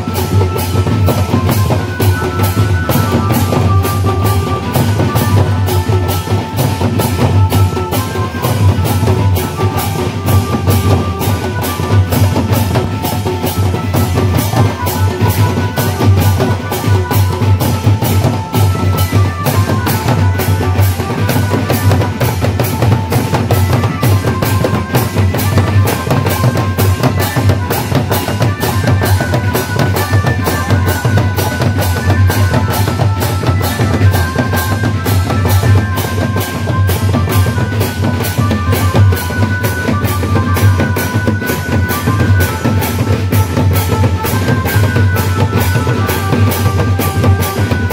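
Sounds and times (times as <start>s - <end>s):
hand cymbals clashing: 0.0s - 47.9s.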